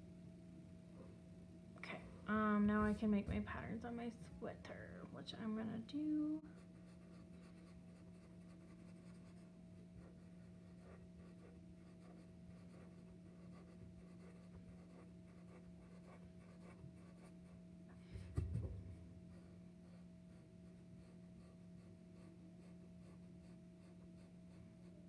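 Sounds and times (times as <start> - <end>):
steady low hum: 0.0 - 25.0
marker scratching on paper: 6.6 - 17.5.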